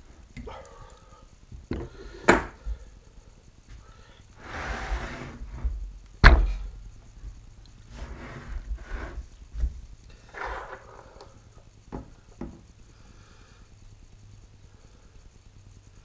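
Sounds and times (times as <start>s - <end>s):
metal sliding and rubbing: 4.4s - 5.8s, 7.9s - 9.4s, 10.2s - 11.3s
heavy metal thunk on bench: 6.2s - 6.7s.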